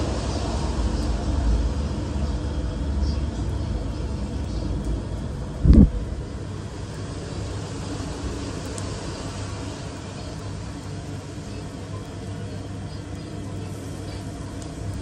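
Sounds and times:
steady low rumble: 0:00.0 - 0:06.9, 0:12.8 - 0:15.0
short low thump: 0:05.6 - 0:06.0.

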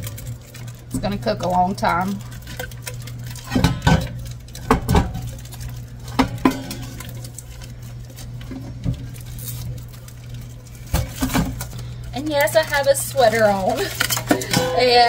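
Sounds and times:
frozen chicken clunking in metal pot: 0:00.0 - 0:10.0.

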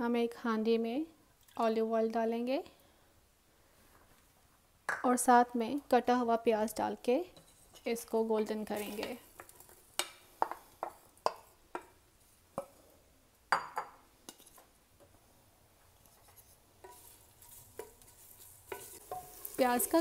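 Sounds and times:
wooden spoon stirring onion in oil: 0:07.4 - 0:12.9, 0:15.8 - 0:20.0.

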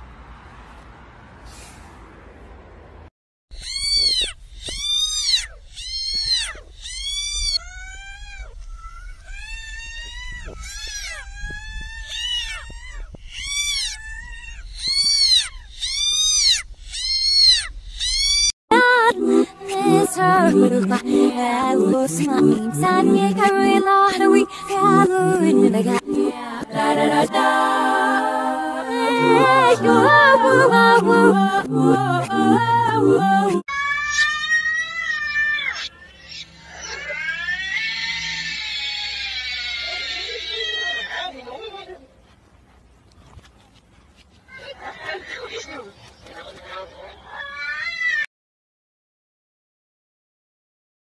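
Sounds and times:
kitten meowing: 0:03.6 - 0:18.5
high meow-like wail: 0:33.7 - 0:41.2.

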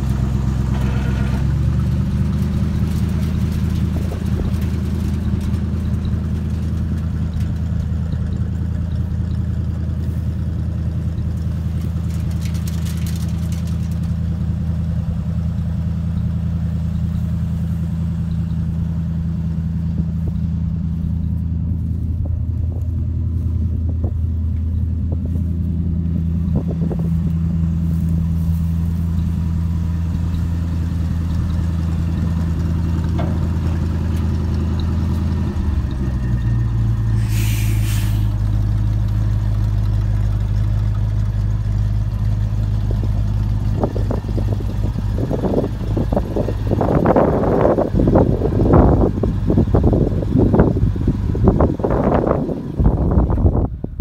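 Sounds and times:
truck engine running: 0:00.0 - 0:54.0
short hiss: 0:37.2 - 0:38.4.

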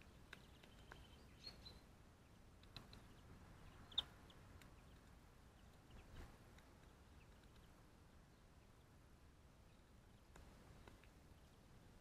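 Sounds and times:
woodpecker pecking ticks: 0:00.0 - 0:01.7, 0:02.4 - 0:07.8, 0:10.2 - 0:11.2.

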